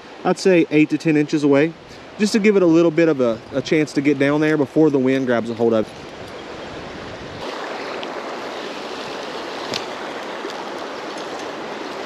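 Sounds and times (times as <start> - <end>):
creek water splashing: 0.4 - 12.0.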